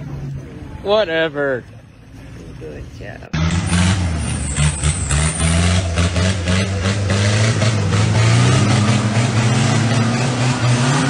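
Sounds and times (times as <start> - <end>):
diesel engine revving hard: 3.4 - 11.0.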